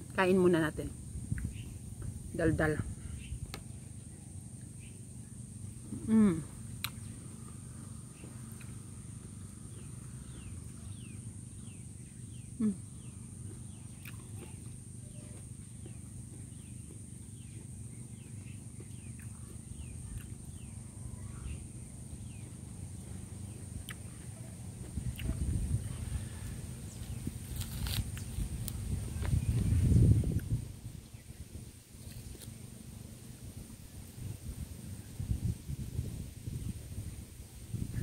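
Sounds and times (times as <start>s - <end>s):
birds chirping: 2.6s - 28.6s.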